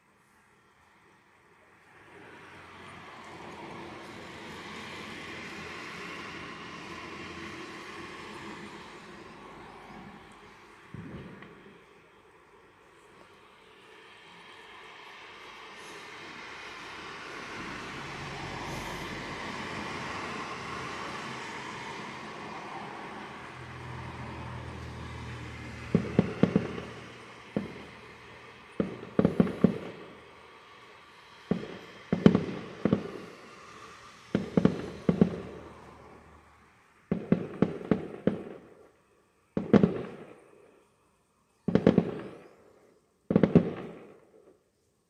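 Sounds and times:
distant fireworks bangs: 4.0 - 11.9, 24.2 - 36.2, 37.0 - 40.8, 41.6 - 44.5.

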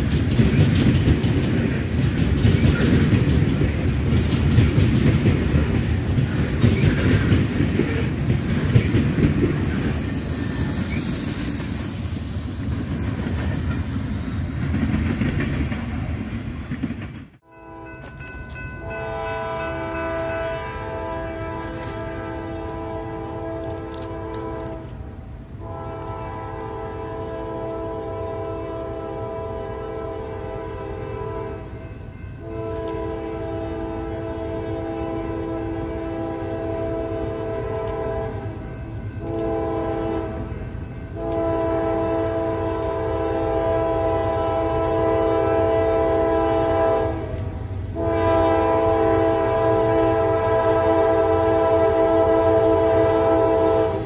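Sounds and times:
train rumble: 0.0 - 54.0
locomotive air horn blasts: 17.4 - 54.0.

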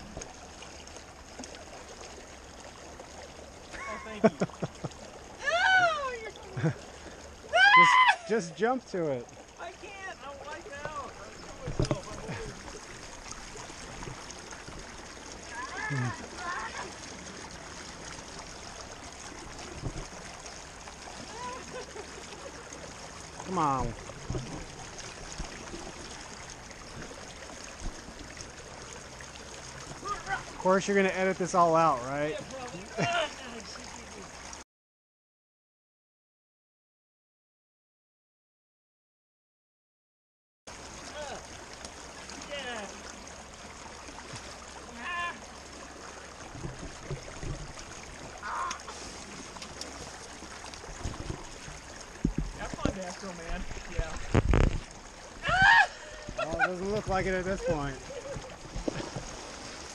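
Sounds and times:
thuds of clambering over boulders: 10.8 - 12.5, 24.2 - 25.6, 50.9 - 57.2, 58.3 - 59.4.

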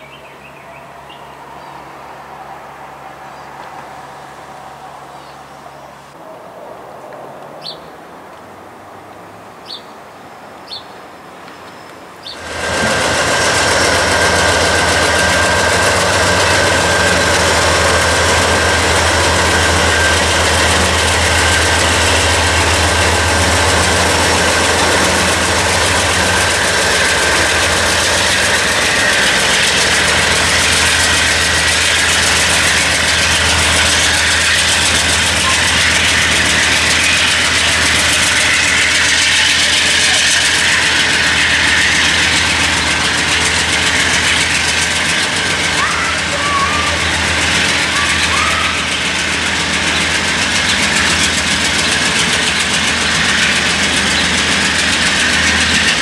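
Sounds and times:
locomotive engine drone: 0.0 - 56.0
thin high whine: 12.4 - 56.0.

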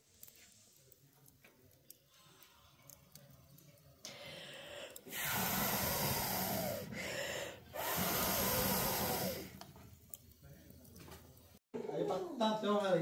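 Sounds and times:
person blowing on embers: 4.0 - 9.9.

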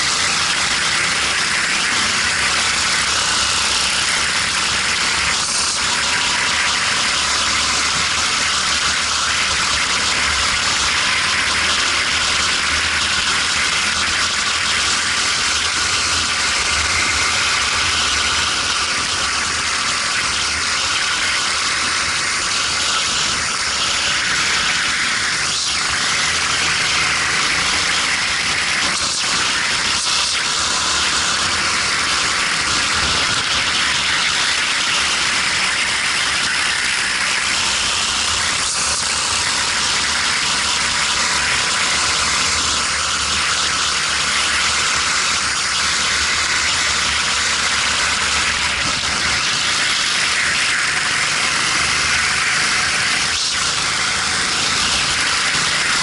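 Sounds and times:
kart engine running: 0.0 - 56.0.

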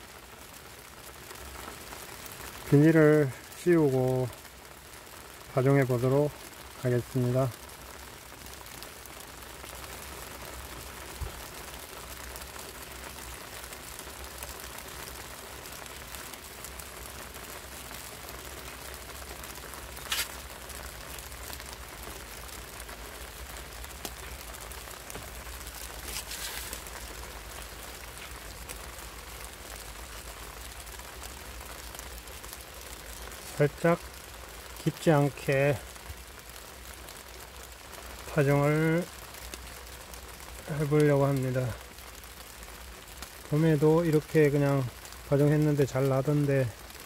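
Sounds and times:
light rain falling: 0.0 - 47.0
short rustle: 20.0 - 20.4, 25.1 - 27.2.

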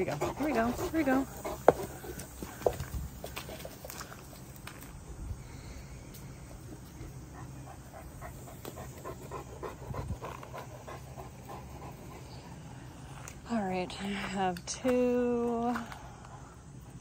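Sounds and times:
dog panting: 0.0 - 4.1, 6.7 - 13.3
paws scuffing on dirt and leaves: 0.1 - 5.2.

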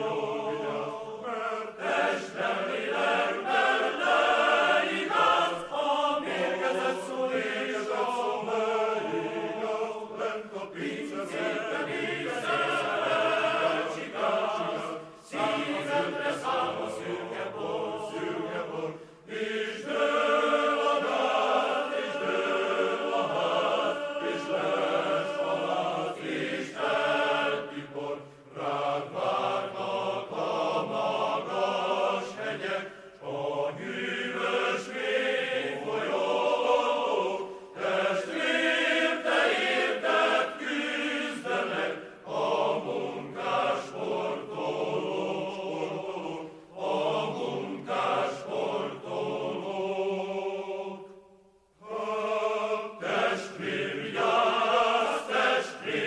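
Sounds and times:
group of voices singing: 0.0 - 56.0.

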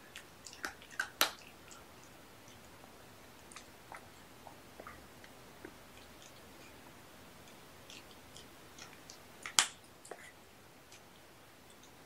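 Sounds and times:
kitten chewing clicks: 0.1 - 2.8, 3.4 - 10.3.

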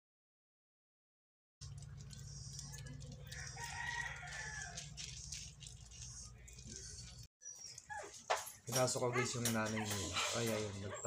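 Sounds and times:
puppies eating kibble: 1.6 - 11.0
rooster crowing: 3.3 - 5.1.

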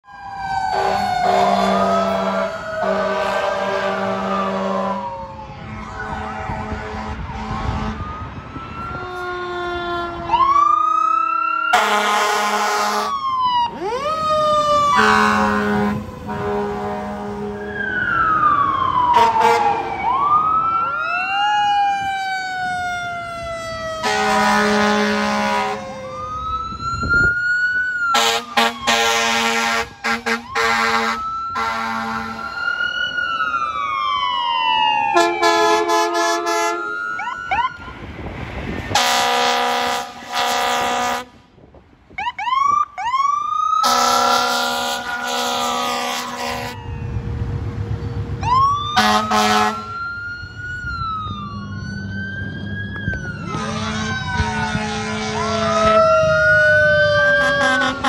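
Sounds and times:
sirens wailing: 0.0 - 58.0
air horn blasts: 0.7 - 8.1, 11.7 - 13.1, 14.9 - 17.6, 19.1 - 19.8, 24.0 - 26.0, 28.1 - 32.5, 35.2 - 37.0, 38.9 - 41.4, 43.8 - 46.8, 49.0 - 50.0, 53.5 - 56.0, 57.4 - 58.0.

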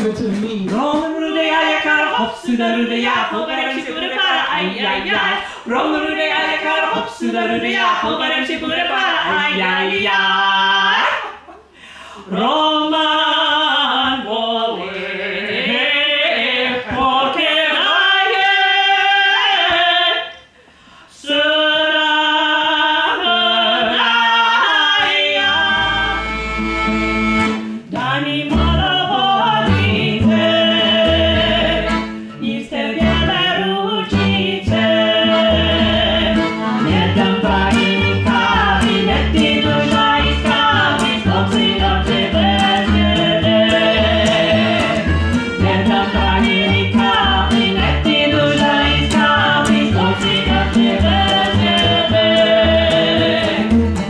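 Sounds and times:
women singing: 0.0 - 11.5, 12.2 - 20.5, 21.1 - 26.5, 27.8 - 54.0
accordion: 25.0 - 54.0
plucked double bass: 25.4 - 54.0.

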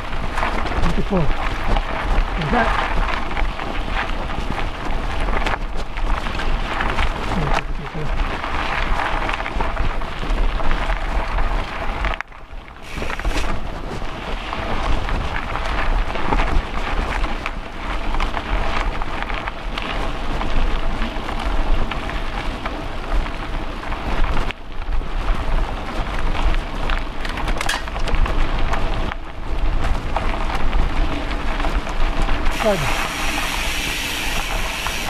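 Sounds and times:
bike rattles and knocks: 0.0 - 33.5
bike tyres crunching on dirt: 0.0 - 35.0.

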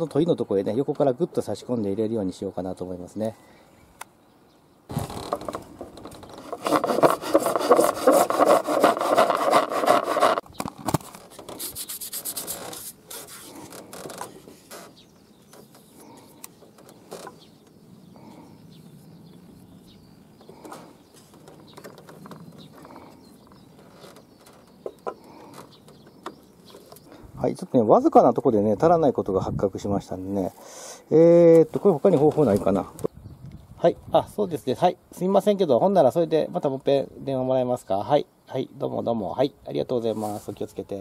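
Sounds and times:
hand saw cutting plastic pipe: 5.4 - 10.4.

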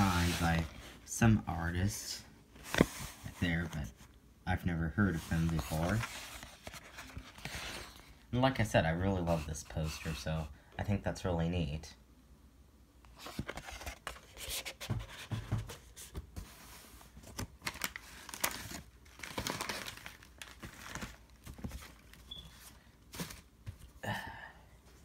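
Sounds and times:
paper and packaging rustling: 0.0 - 1.0, 5.0 - 8.2, 13.1 - 23.9.

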